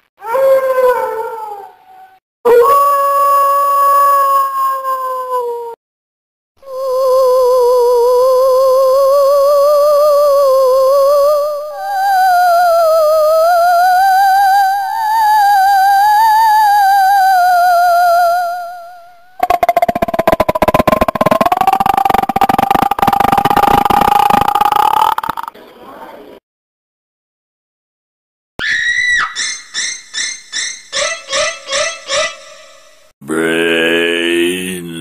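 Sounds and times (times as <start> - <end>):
harsh creaking throat rattle: 19.4 - 25.5.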